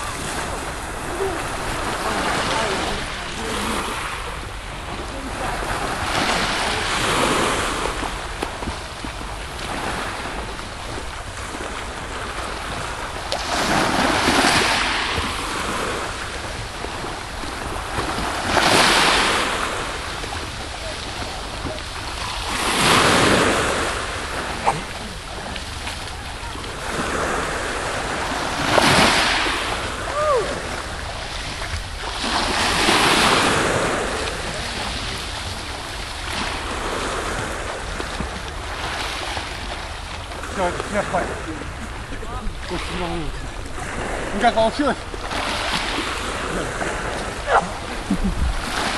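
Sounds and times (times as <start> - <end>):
waves washing onto shore: 0.0 - 48.9
wind on microphone: 45.4 - 48.9.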